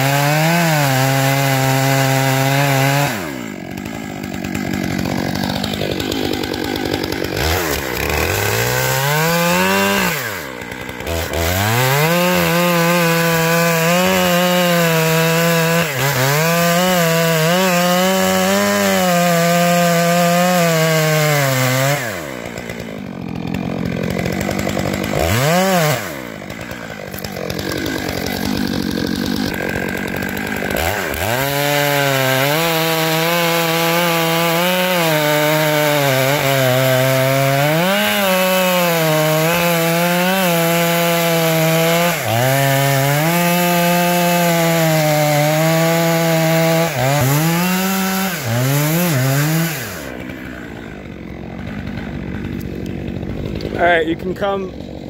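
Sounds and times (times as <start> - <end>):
chainsaw cutting tree trunk: 0.0 - 55.0.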